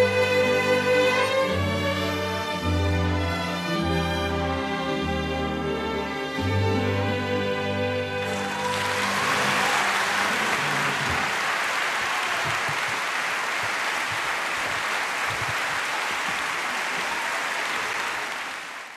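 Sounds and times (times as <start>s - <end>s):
audience applauding: 8.2s - 18.9s.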